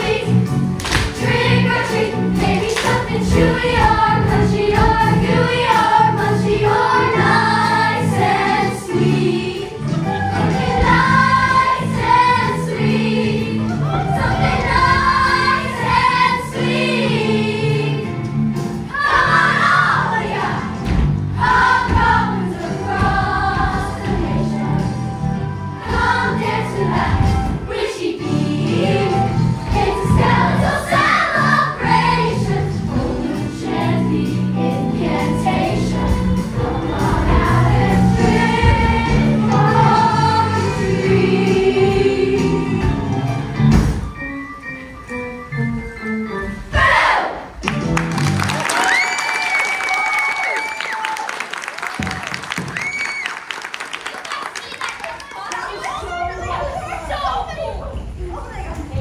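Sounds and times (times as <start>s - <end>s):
young performers singing in chorus: 0.0s - 0.5s, 1.1s - 18.2s, 18.8s - 25.0s, 25.8s - 43.2s
backing music: 0.0s - 53.6s.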